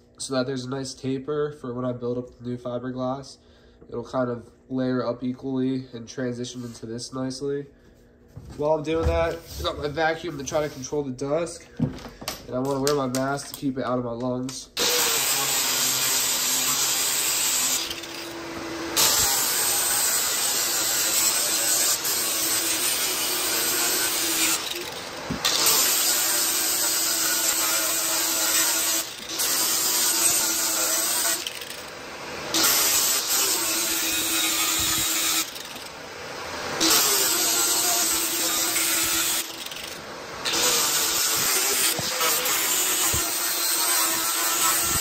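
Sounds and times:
grinder sanding fiberglass: 0:14.8 - 0:31.9, 0:32.5 - 0:35.8, 0:36.8 - 0:45.0.

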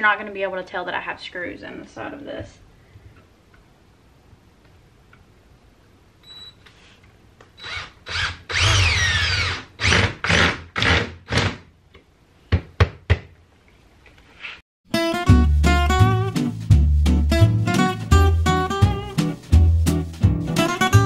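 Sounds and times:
power drill driving screws: 0:07.6 - 0:11.6.

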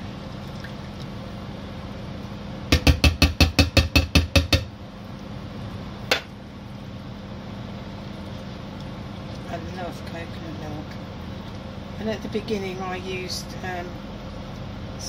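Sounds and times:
tin knocking on a frying pan: 0:02.7 - 0:04.7.

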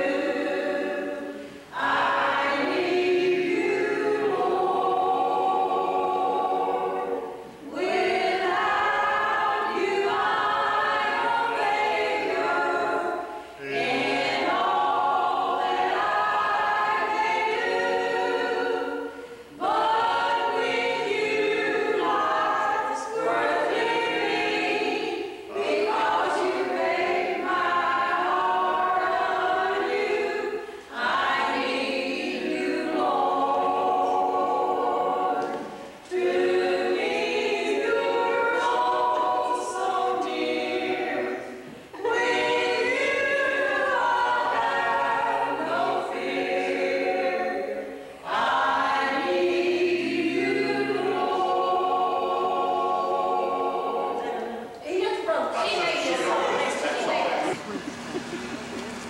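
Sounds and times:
group singing a cappella: 0:00.0 - 0:58.8.

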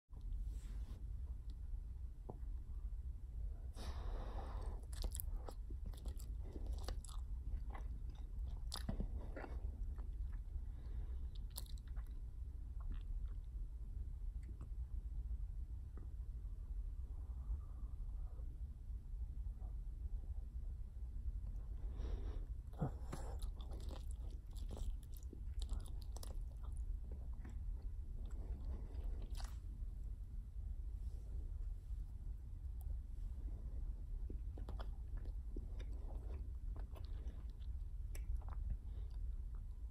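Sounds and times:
gum chewing smacks: 0:04.7 - 0:10.6, 0:11.3 - 0:13.5, 0:22.7 - 0:29.6, 0:34.3 - 0:39.7.

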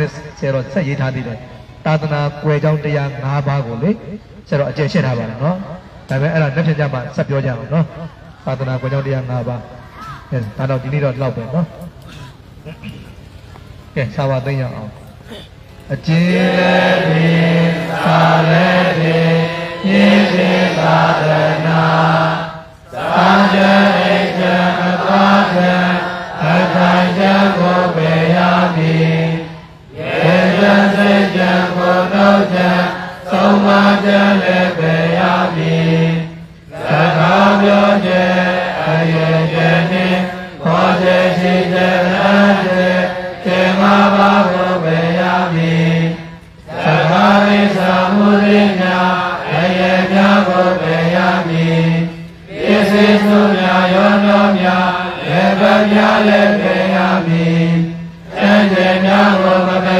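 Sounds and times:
man chanting: 0:15.9 - 0:22.0.

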